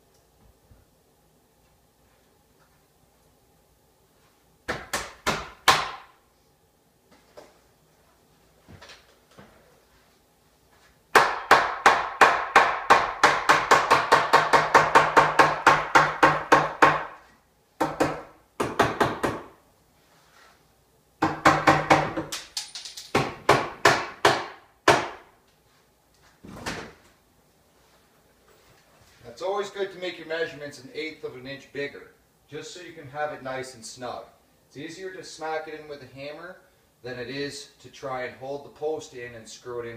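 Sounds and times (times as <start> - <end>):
hammer striking wood: 4.7 - 6.1, 11.1 - 17.2, 17.8 - 19.6, 21.2 - 22.4, 23.1 - 25.3.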